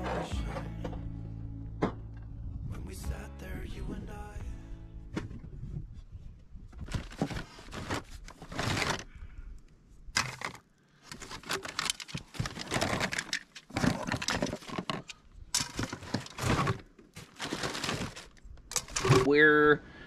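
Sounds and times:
plastic pipe pieces clattering: 0:06.8 - 0:09.1, 0:10.2 - 0:19.3.

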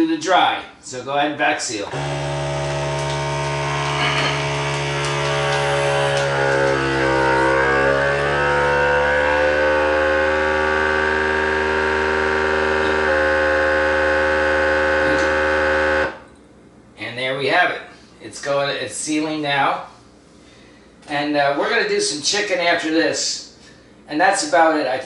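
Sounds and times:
vacuum sealer pump running: 0:01.9 - 0:16.3.

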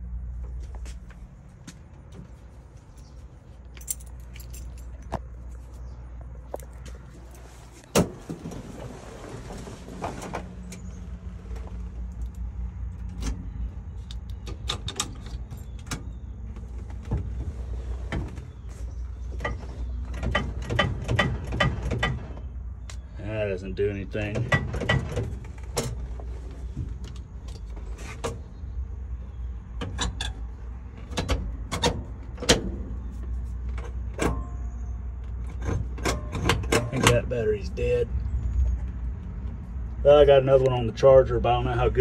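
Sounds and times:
keys jangling: 0:03.7 - 0:05.1
ignition clicks and knocks: 0:11.5 - 0:17.4, 0:18.1 - 0:23.0, 0:24.2 - 0:28.4, 0:29.8 - 0:37.4.

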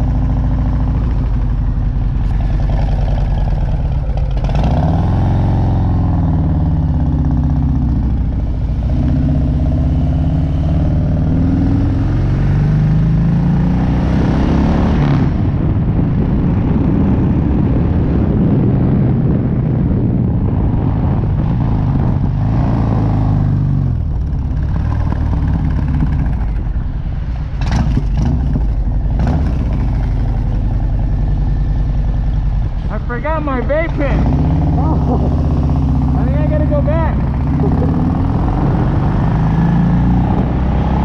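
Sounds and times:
wind on microphone: 0:00.0 - 0:33.0, 0:34.1 - 0:41.0
motorcycle engine accelerating: 0:00.0 - 0:41.0.

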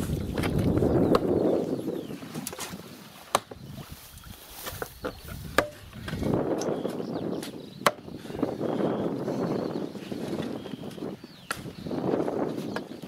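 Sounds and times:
hand tool striking wood: 0:04.6 - 0:08.1, 0:11.5 - 0:11.7.

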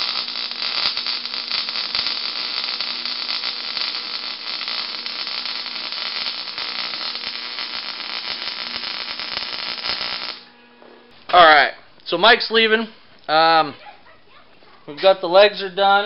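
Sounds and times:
welder arc crackling: 0:00.0 - 0:10.5.

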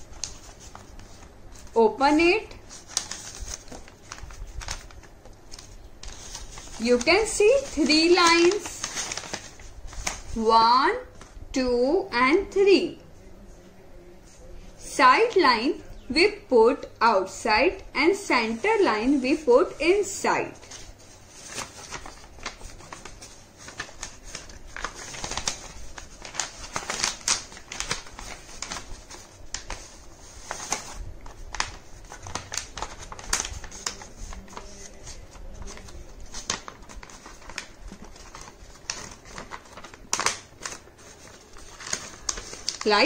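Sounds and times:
paper rustling and crackling: 0:00.0 - 0:01.8, 0:02.5 - 0:11.4, 0:20.4 - 0:43.0.

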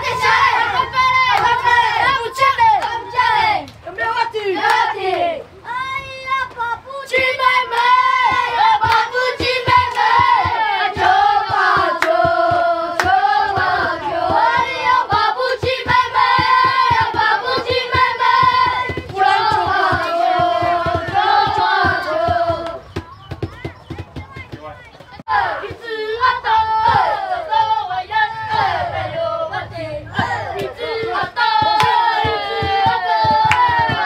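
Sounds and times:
children singing in unison: 0:00.0 - 0:22.9, 0:25.3 - 0:34.0
children clapping: 0:01.2 - 0:03.8, 0:04.6 - 0:05.3, 0:07.2 - 0:23.0, 0:30.2 - 0:34.0.

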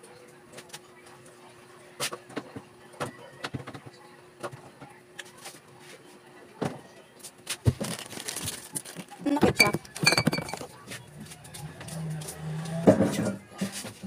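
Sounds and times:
goods and packaging being handled: 0:06.6 - 0:14.0.

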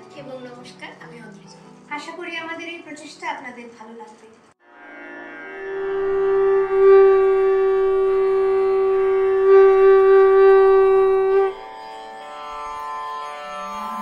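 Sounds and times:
sustained music: 0:04.6 - 0:14.0
conch shell blown: 0:04.7 - 0:14.0.

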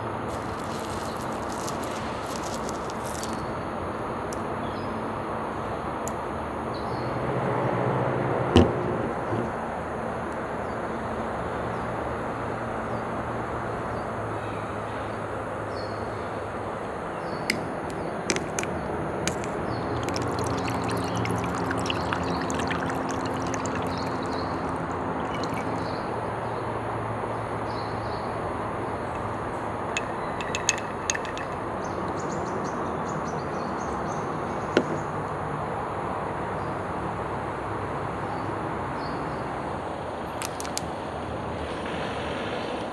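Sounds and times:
drink poured over ice: 0:00.3 - 0:03.5, 0:19.3 - 0:26.0, 0:30.0 - 0:31.7
plastic bottle cap clicking open: 0:17.5 - 0:20.6, 0:30.0 - 0:31.6, 0:40.4 - 0:40.9.

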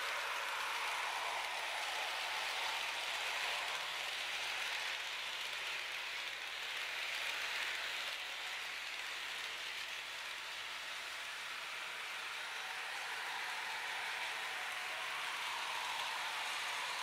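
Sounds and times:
model train wheels on rail: 0:00.0 - 0:17.0.

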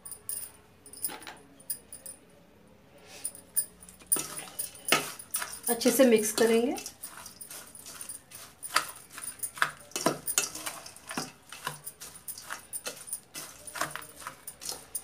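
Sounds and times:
dry crunchy mix tossing: 0:04.0 - 0:15.0
metal spoon scraping steel bowl: 0:04.0 - 0:15.0.

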